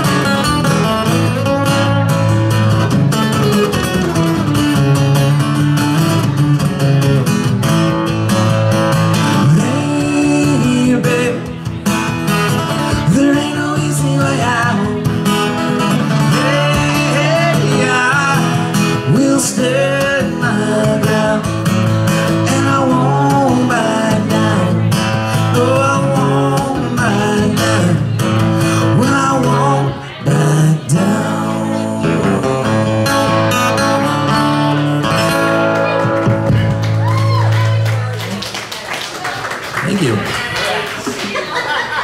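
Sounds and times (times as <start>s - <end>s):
acoustic guitar strumming: 0.0s - 37.1s
person singing: 9.4s - 11.8s, 12.7s - 15.2s, 15.9s - 21.5s, 22.3s - 33.0s.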